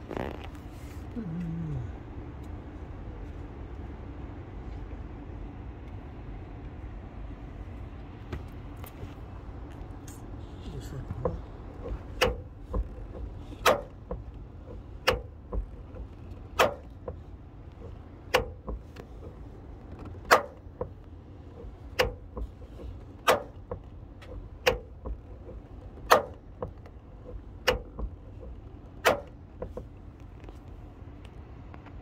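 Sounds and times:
car rumbling on road: 0:00.0 - 0:32.0.

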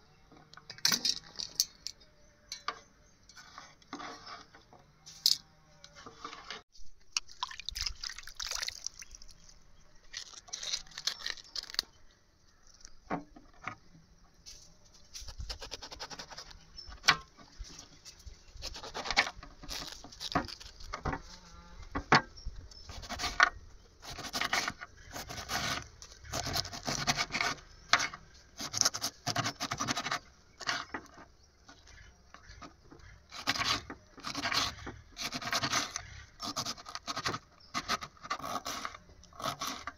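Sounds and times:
utensils scraping and knocking cookware: 0:00.7 - 0:06.6.

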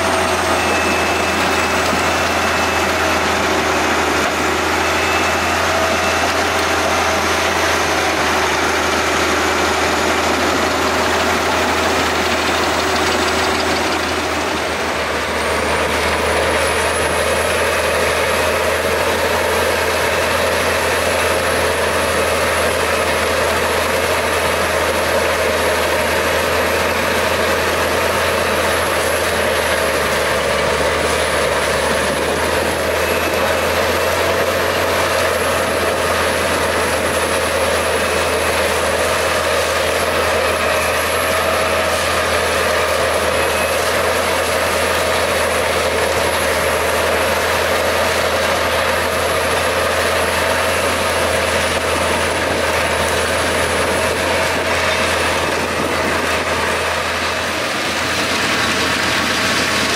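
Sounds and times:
steady high whine: 0:00.0 - 0:59.9
wood chipper engine under load: 0:00.0 - 0:59.9.

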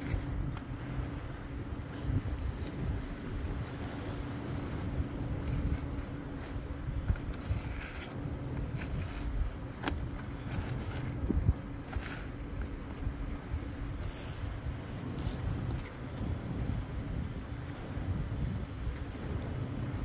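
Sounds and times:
knife scraping hide: 0:03.5 - 0:13.1.

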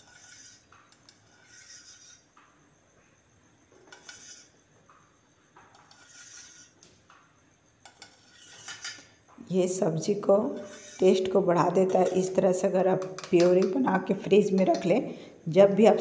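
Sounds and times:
spoon on plastic jar: 0:14.5 - 0:15.0.

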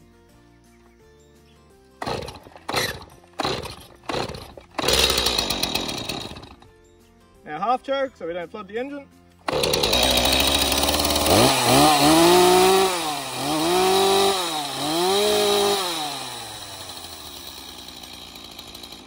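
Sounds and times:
chainsaw starting and revving: 0:02.0 - 0:06.7, 0:09.4 - 0:19.0.

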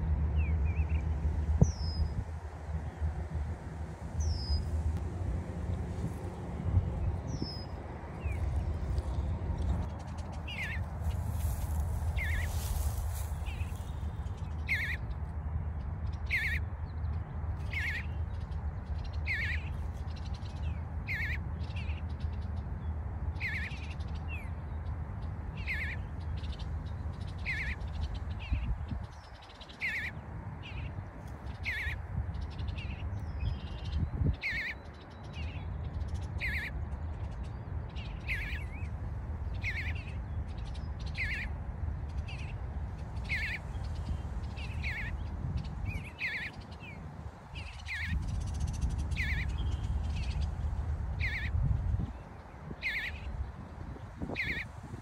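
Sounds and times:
low steady rumble: 0:00.0 - 0:14.8.

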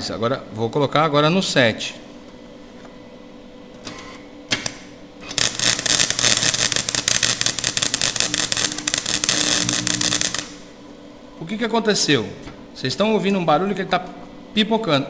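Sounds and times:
welder click: 0:04.5 - 0:10.7
welding arc popping crackle: 0:04.5 - 0:10.8.

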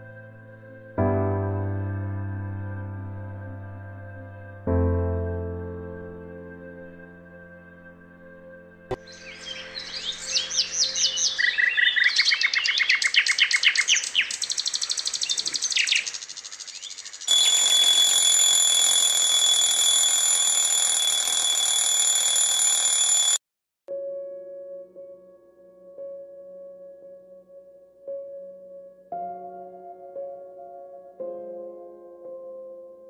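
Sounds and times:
birds chirping: 0:08.9 - 0:17.7
high-pitched electronic alarm: 0:17.3 - 0:23.4.

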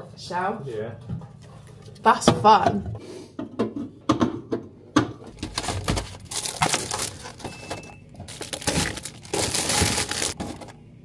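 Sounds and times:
plastic packaging rustling and crinkling: 0:05.3 - 0:10.8.

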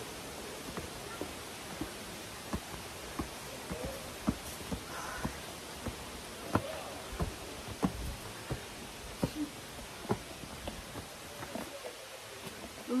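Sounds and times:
footsteps on stone stairs: 0:00.0 - 0:13.0
steady background hiss: 0:00.0 - 0:13.0.

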